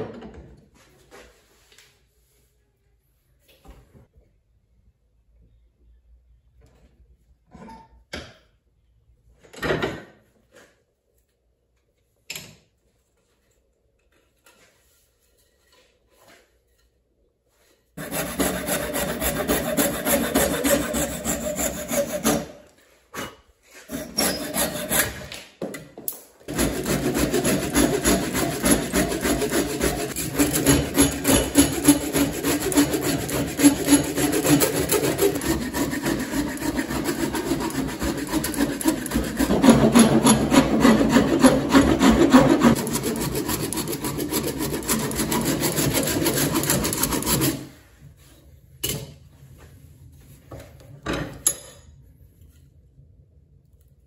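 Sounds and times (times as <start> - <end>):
saw and rasp scraping wood: 18.0 - 25.3, 26.5 - 48.3.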